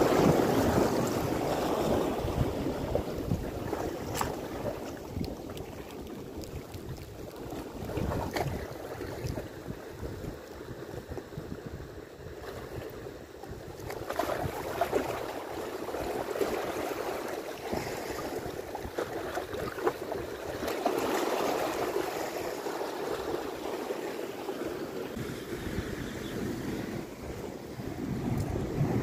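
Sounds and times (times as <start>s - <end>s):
sea waves splashing against shore: 0.0s - 9.8s, 13.8s - 29.0s.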